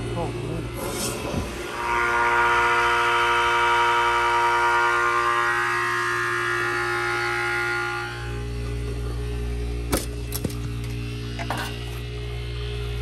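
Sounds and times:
low hum: 0.0 - 13.0
whistling rush of refrigerant: 0.6 - 9.8.

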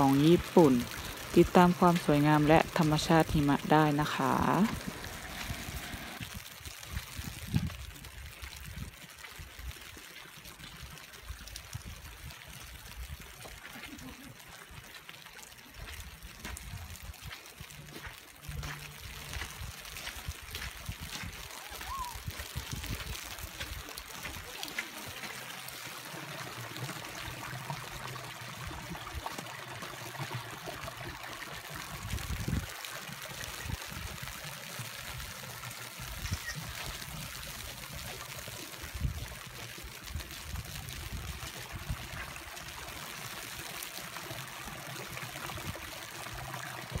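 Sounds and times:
water trickling from melting snow: 0.0 - 47.0
wind rumble on microphone: 4.6 - 9.8, 19.4 - 23.8, 31.9 - 32.7.

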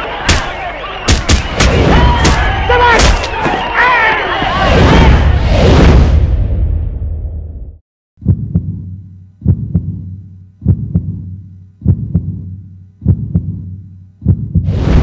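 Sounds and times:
heartbeat thumps: 8.2 - 15.0.

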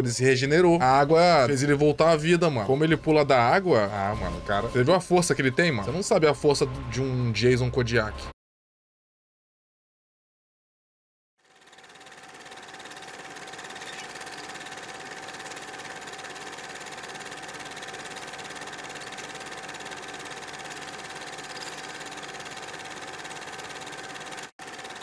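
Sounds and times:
film projector running: 11.4 - 25.0.

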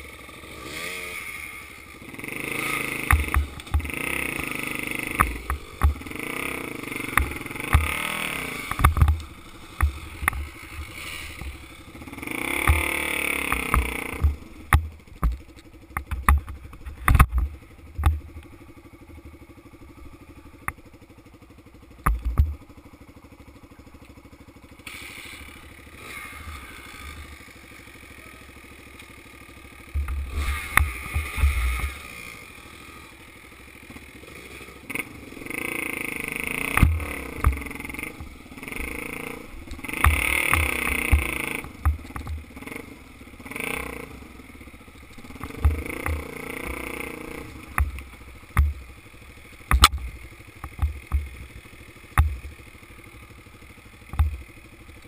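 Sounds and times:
dirt bike engine revving: 0.0 - 23.1, 24.6 - 55.0
knocks and thumps from bumps: 12.6 - 18.2, 49.7 - 51.4, 54.1 - 54.4.

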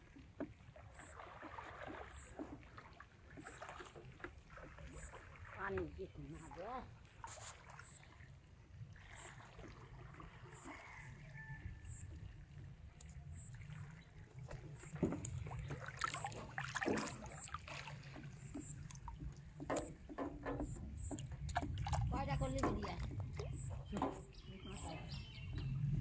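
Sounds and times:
light water splashes: 0.0 - 26.0
fishing rod knocking in metal boat: 18.1 - 25.0.

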